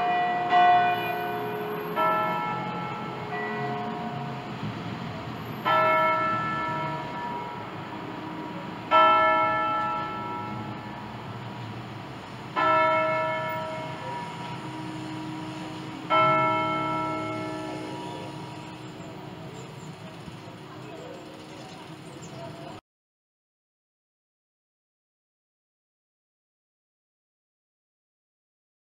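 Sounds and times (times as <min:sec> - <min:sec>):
church bell strokes: 0:00.0 - 0:04.6, 0:05.6 - 0:11.2, 0:12.5 - 0:20.4
faint hum of other bells: 0:00.0 - 0:04.6, 0:05.4 - 0:07.8, 0:08.4 - 0:11.2, 0:12.6 - 0:22.8.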